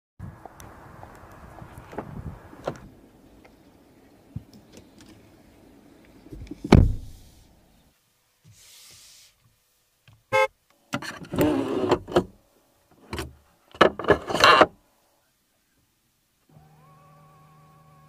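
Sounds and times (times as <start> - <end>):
handling noise inside car cabin: 1.7 - 2.9, 6.2 - 7.2
car door shutting with heavy thud: 6.6 - 7.2.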